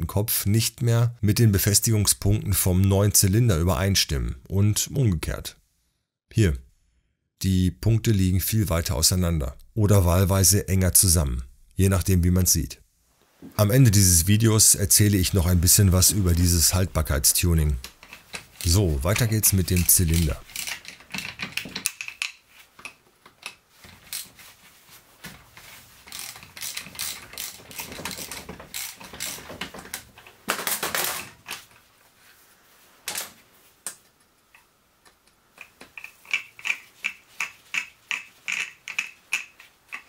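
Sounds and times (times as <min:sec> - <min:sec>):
ratchet wrench clicking: 0:18.0 - 0:22.4, 0:26.1 - 0:29.4, 0:35.6 - 0:40.0.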